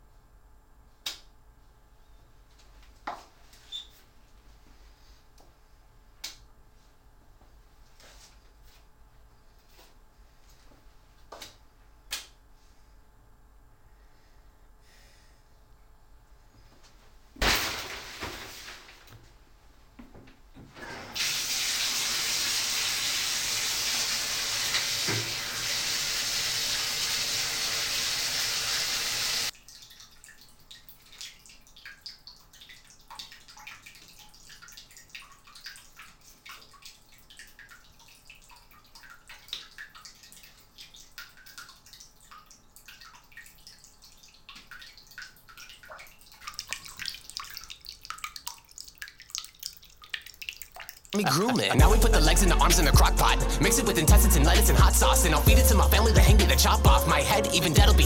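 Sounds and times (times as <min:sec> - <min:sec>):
water running from a tap: 0:21.2 - 0:30.3.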